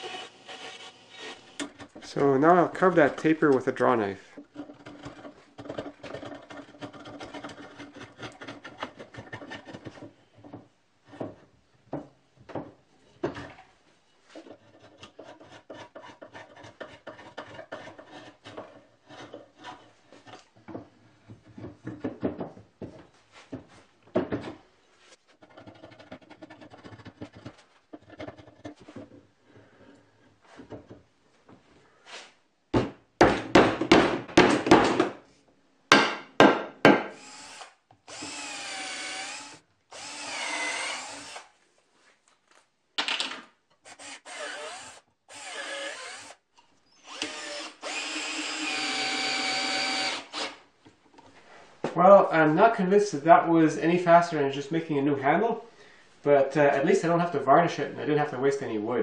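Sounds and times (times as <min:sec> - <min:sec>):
draw knife scraping wood: 0:14.3 - 0:20.5
wooden knocks: 0:20.6 - 0:24.6.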